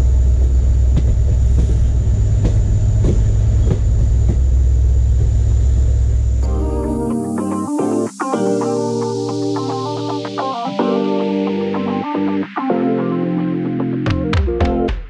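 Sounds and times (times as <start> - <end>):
train coach rumbling: 0.0 - 6.5.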